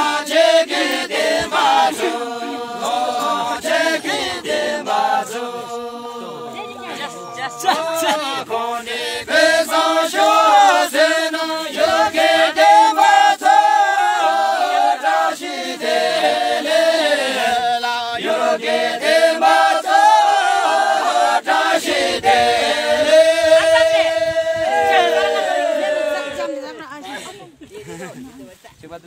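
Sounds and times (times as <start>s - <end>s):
group chanting song: 0.0s - 26.9s.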